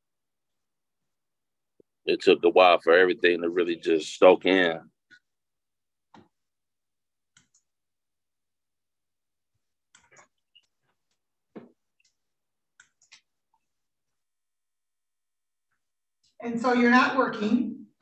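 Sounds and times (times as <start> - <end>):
faint clicks and taps: 6.0 - 6.5, 7.2 - 7.8, 9.6 - 14.3
soft knock: 11.5 - 11.8.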